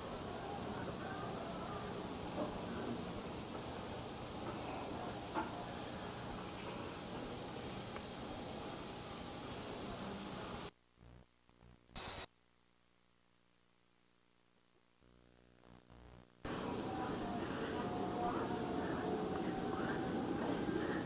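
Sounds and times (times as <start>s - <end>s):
insects shrilling: 0.0s - 10.7s
noisy hiss: 0.0s - 21.0s.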